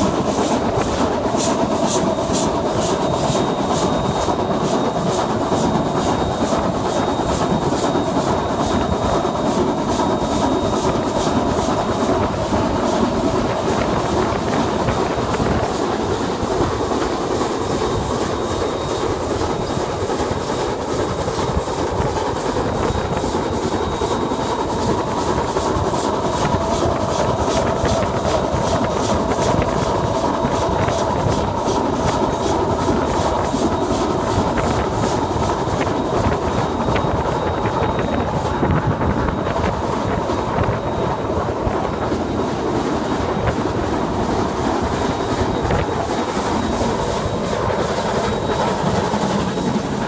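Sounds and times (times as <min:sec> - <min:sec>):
steam locomotive beats: 0:00.0 - 0:50.0.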